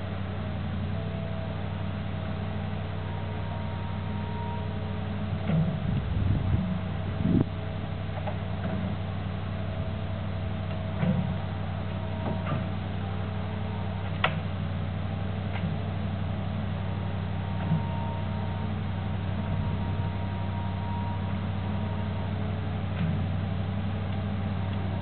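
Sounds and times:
diesel engine droning: 0.0 - 25.0.

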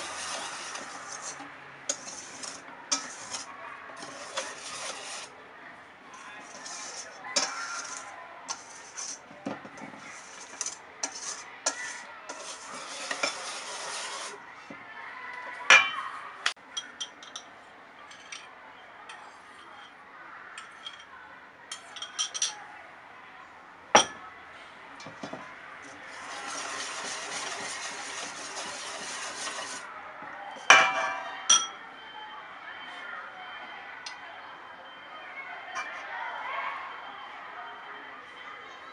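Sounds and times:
whisk scraping metal bowl: 0.0 - 5.3, 6.2 - 14.4, 25.8 - 29.9
whisk clinking on bowl: 6.5 - 9.2, 26.1 - 29.8.

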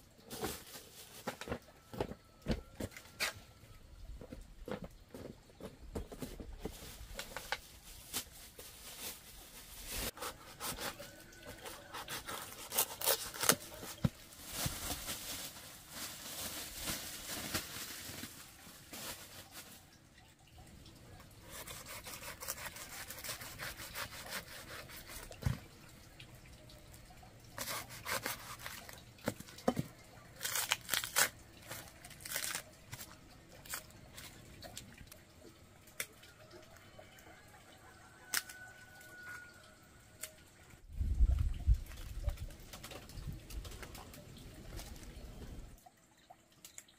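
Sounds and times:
fruit flesh tearing wetly: 30.3 - 32.8.

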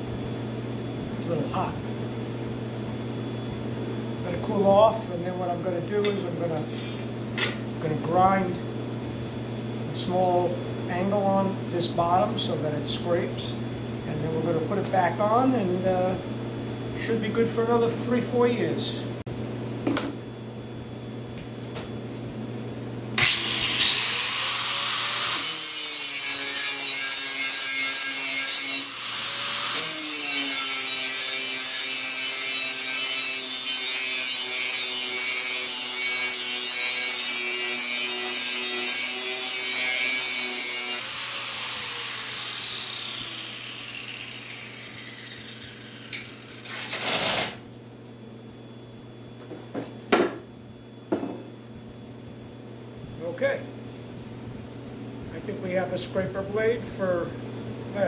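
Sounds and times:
angle grinder grinding steel: 23.2 - 47.5.

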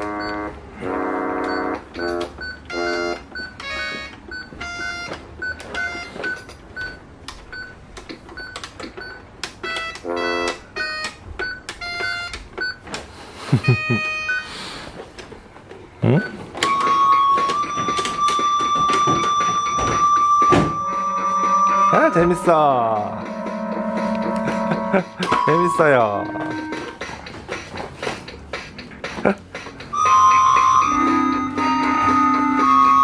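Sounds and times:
toy keyboard electronic notes: 0.0 - 6.2, 9.6 - 12.4, 16.2 - 27.4, 29.8 - 33.0
held electronic tone: 16.1 - 27.0.

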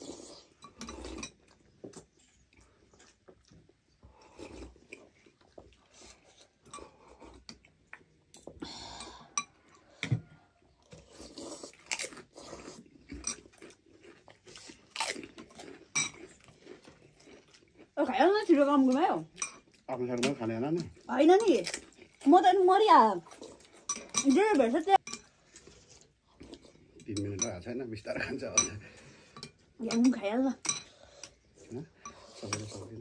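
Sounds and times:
chewing and slurping: 0.0 - 27.3, 28.7 - 33.0
cutlery clinking on glass bowls: 15.9 - 16.2, 23.8 - 25.3, 27.0 - 31.0.

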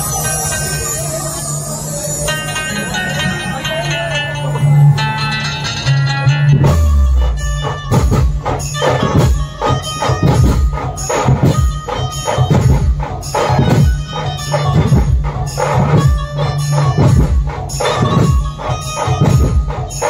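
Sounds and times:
band music through sound system: 0.0 - 20.0
strong percussion beat: 5.6 - 20.0.

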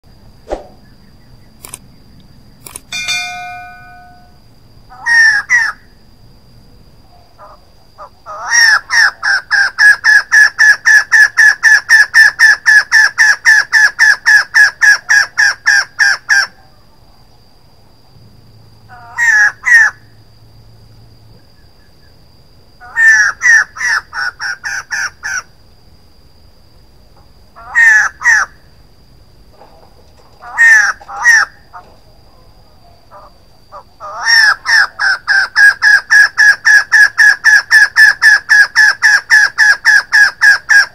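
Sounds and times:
faint steady high tone: 2.9 - 4.7
bird calling in rapid bursts: 30.4 - 31.7, 33.2 - 40.9.

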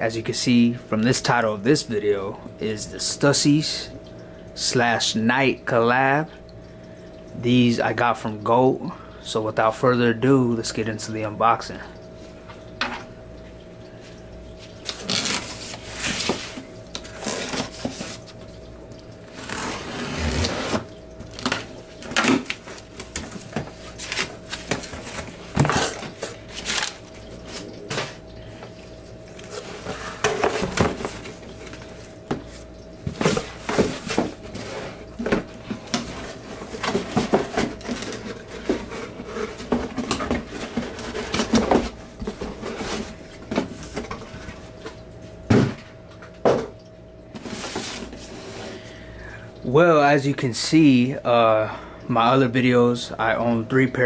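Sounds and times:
faint steady hum: 0.0 - 54.0
packing paper rustling: 14.8 - 18.4, 19.3 - 28.2.

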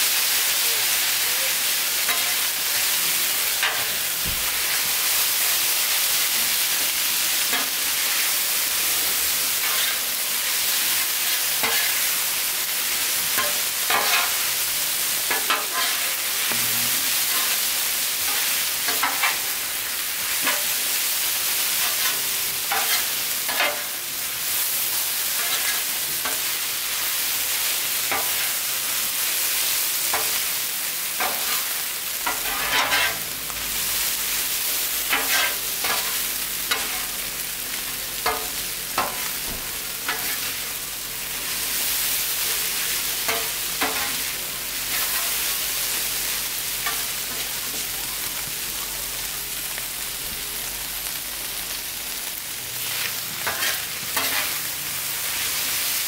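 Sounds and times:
food sizzling on griddle: 0.0 - 56.0
metal spatula scraping griddle: 2.0 - 6.8, 9.2 - 12.2, 13.2 - 20.9, 21.5 - 24.0, 25.3 - 26.6, 28.1 - 28.7, 31.1 - 33.4, 34.0 - 37.2, 38.2 - 40.7, 42.6 - 47.6, 52.8 - 54.8.

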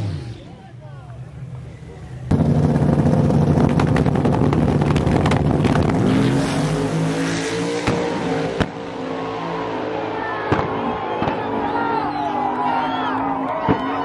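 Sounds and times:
truck engines revving: 0.0 - 14.0
exhaust pops: 2.3 - 6.2.

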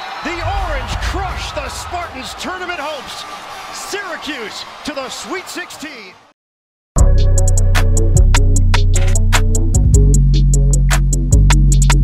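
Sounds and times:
music with heavy bass and beat: 7.0 - 12.0.

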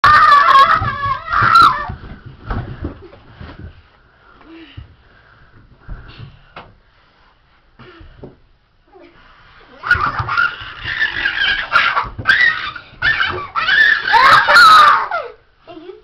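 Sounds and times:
child shrieking and squealing: 0.0 - 2.0, 9.8 - 15.4
thumps on carpeted stairs: 0.0 - 3.9.

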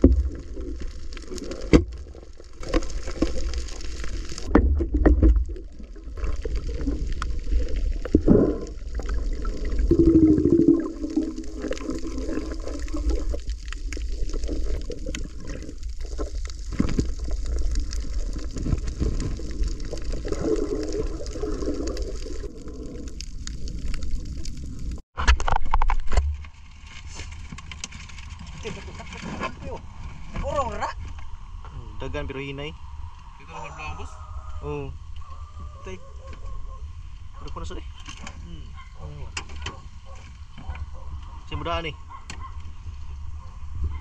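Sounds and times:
underwater gurgling: 0.0 - 26.2
underwater rumble: 0.0 - 33.4.

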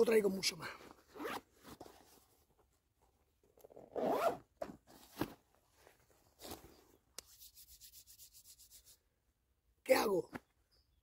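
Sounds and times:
backpack zipper pulled: 1.0 - 1.9, 3.6 - 4.5
palms rubbing together: 7.2 - 9.1.

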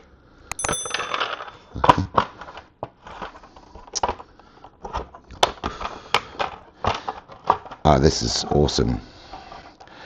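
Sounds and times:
short high ring: 0.5 - 1.8.

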